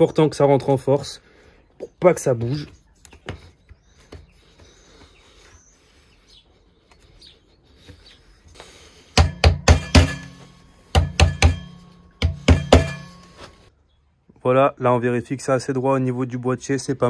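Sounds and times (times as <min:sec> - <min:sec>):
hammer knocking: 0:09.2 - 0:13.3.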